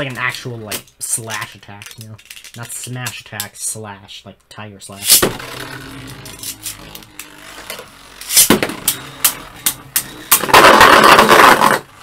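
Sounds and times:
spinning tops clashing: 5.0 - 7.5, 8.1 - 11.9
grinding rattle: 5.1 - 12.0.

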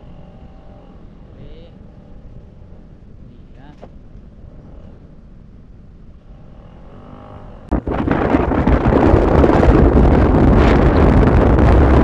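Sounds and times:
wind buffeting microphone: 6.8 - 12.0.

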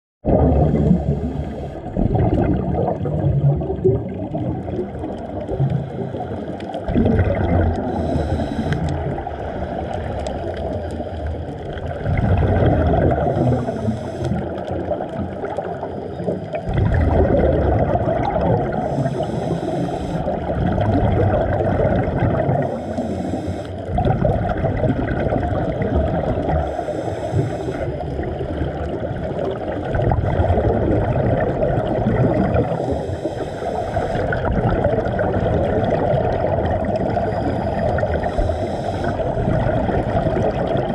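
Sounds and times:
exhaled bubbles rushing underwater: 0.2 - 40.9
regulator hiss on inhale: 0.8 - 2.0, 5.4 - 6.9, 7.7 - 11.8, 13.2 - 15.0, 15.6 - 16.7, 18.7 - 20.5, 22.6 - 23.9, 26.6 - 28.2, 32.5 - 34.6, 37.0 - 39.6.

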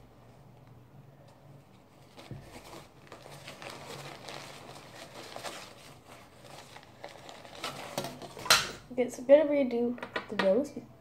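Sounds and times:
paper tissue rustling: 1.2 - 8.5.

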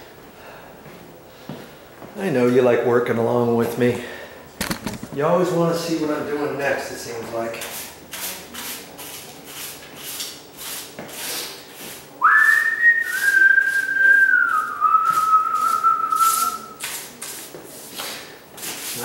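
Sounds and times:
broom sweeping tile floor: 6.6 - 19.0
man whistling: 12.2 - 16.8.

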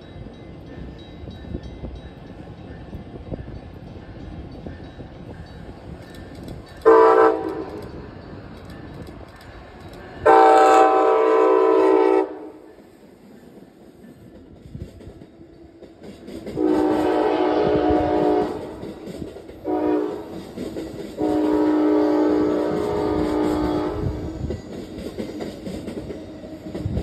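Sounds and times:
train air horn blasts: 6.8 - 7.9, 10.2 - 12.7, 16.6 - 18.8, 19.6 - 20.4, 21.2 - 24.4.

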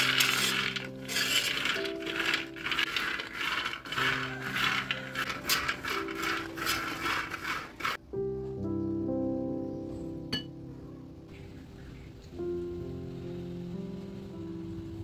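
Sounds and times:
peanuts rattling in a metal pan: 0.0 - 8.0
background music: 0.0 - 15.0.

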